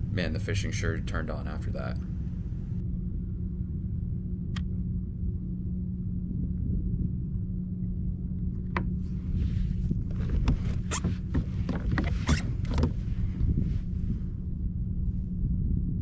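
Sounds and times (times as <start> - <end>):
wind: 0.0 - 16.0
water on a kayak: 6.0 - 15.1.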